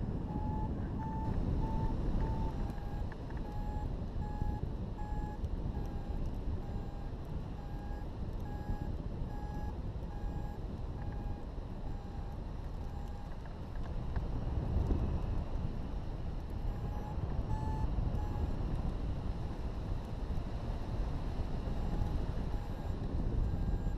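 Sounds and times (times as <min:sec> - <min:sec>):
wind rushing across microphone: 0:00.0 - 0:23.9
variometer beeping: 0:00.1 - 0:13.4, 0:16.6 - 0:18.7, 0:21.6 - 0:23.9.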